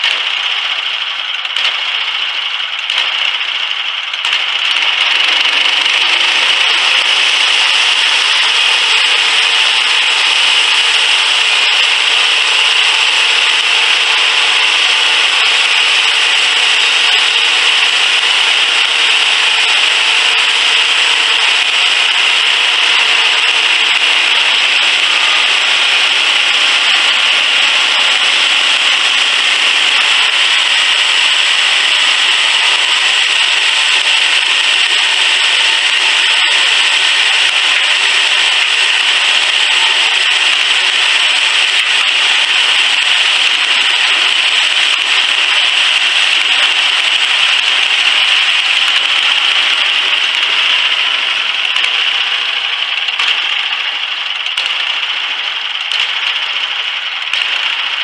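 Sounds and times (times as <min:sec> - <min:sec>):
gas engine running under load: 0:00.0 - 0:58.0
band saw blade hissing through wood: 0:05.6 - 0:51.6.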